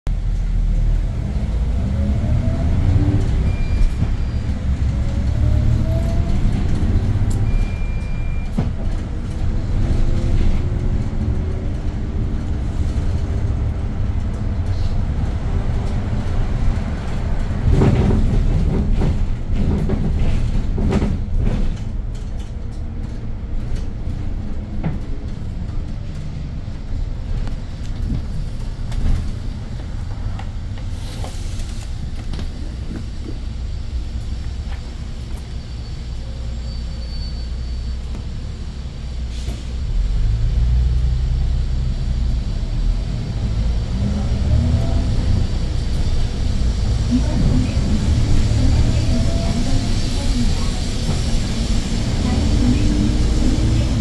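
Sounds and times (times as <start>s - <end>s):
bus engine rumbling: 0.1s - 54.0s
short high beeps: 3.4s - 4.4s.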